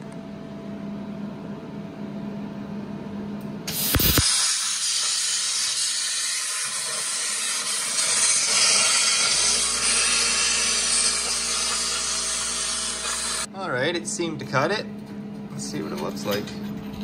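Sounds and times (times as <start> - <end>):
plasma arc crack: 3.7 - 13.5
plasma cutter hissing: 3.7 - 13.5.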